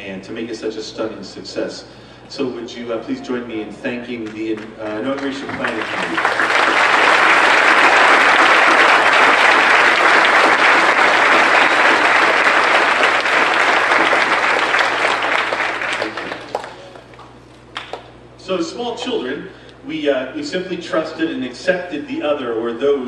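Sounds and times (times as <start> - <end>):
audience applauding: 4.6 - 18.1.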